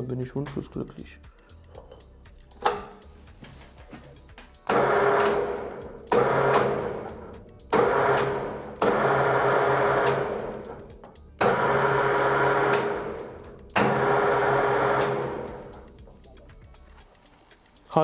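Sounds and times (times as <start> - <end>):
lathe motor humming: 4.7 - 16.0.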